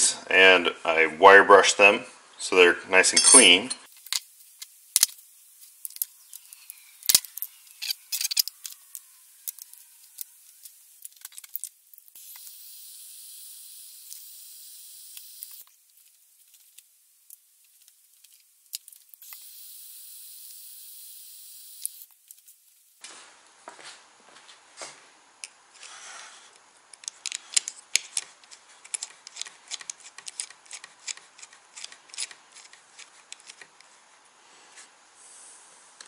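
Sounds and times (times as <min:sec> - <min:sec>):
torch burning with hiss: 0:03.9 - 0:15.8, 0:19.1 - 0:22.1.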